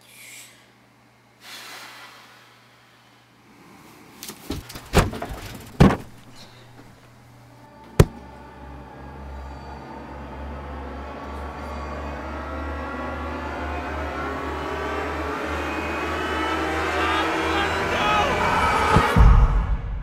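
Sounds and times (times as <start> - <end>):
sharp knock: 8.0 - 8.2.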